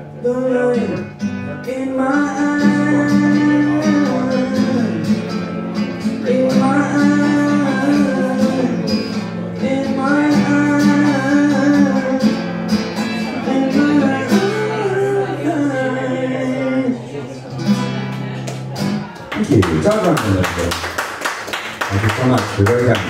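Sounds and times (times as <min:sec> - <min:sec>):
classical guitar playing: 0:00.0 - 0:19.9
man singing wordlessly: 0:00.2 - 0:05.3, 0:06.0 - 0:12.4, 0:13.0 - 0:17.2.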